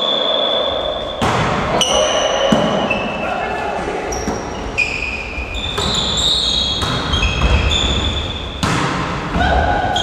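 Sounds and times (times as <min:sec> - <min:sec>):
volleyball being struck: 0:01.2 - 0:03.0, 0:08.6 - 0:09.4.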